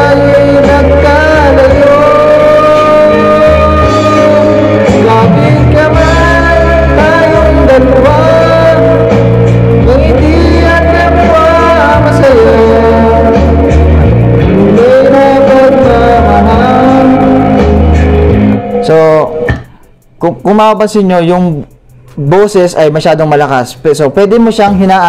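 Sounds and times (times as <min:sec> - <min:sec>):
person singing into microphone: 0:00.0 - 0:19.8
bass-heavy karaoke music: 0:00.0 - 0:25.0.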